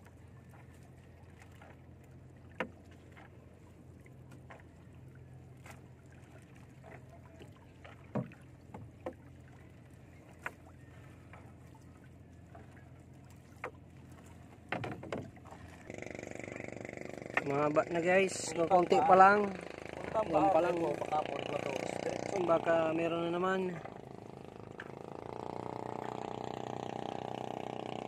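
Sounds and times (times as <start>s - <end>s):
net floats knocking on wooden hull: 2.4s - 3.3s, 6.8s - 9.6s, 13.5s - 17.6s.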